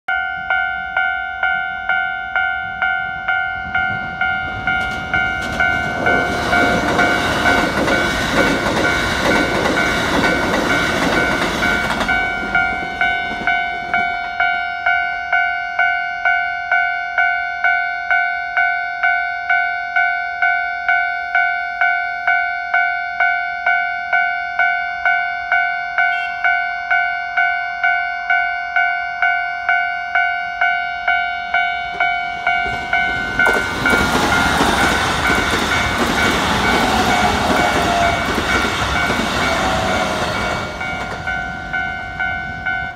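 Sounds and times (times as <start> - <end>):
level crossing warning bell: 0.1 - 42.9
train wheels clattering over rail joints: 4.6 - 14.2, 32.0 - 41.6.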